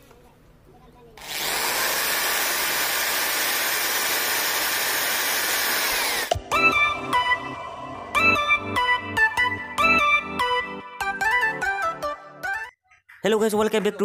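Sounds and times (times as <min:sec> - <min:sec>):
electric drill boring into pipe: 0:01.2 - 0:06.4
electronic music: 0:06.3 - 0:14.0.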